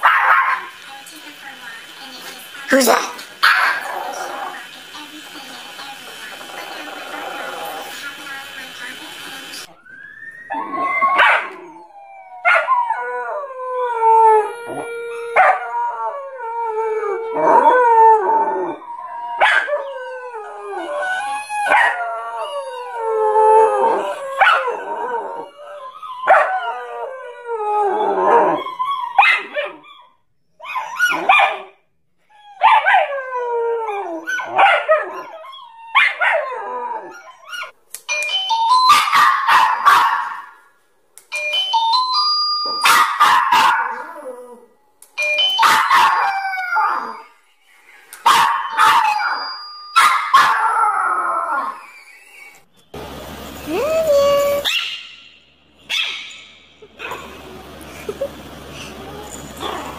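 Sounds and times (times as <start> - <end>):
dog howling: 2.4 - 5.1, 10.4 - 29.8, 48.5 - 52.6, 53.7 - 54.9, 58.8 - 59.9.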